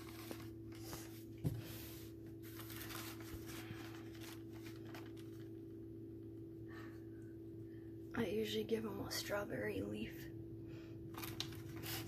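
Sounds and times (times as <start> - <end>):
thin plastic crinkling: 0.0 - 1.2, 2.3 - 5.8, 11.1 - 12.0
steady low hum: 0.0 - 12.0.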